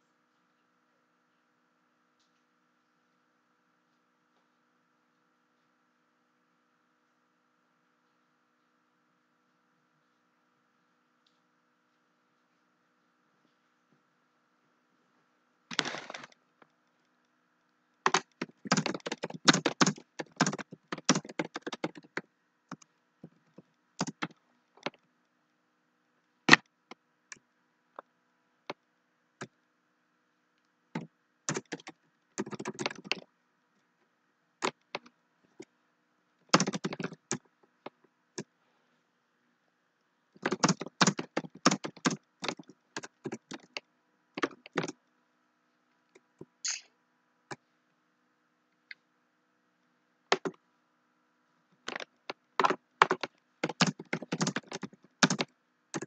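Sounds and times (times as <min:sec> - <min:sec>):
faint steady hum: 0:00.0 - 0:56.0
typing on computer keyboard: 0:18.1 - 0:22.8, 0:24.0 - 0:25.0, 0:31.0 - 0:33.2, 0:36.5 - 0:37.5, 0:40.4 - 0:43.8, 0:44.4 - 0:45.0, 0:51.9 - 0:56.0.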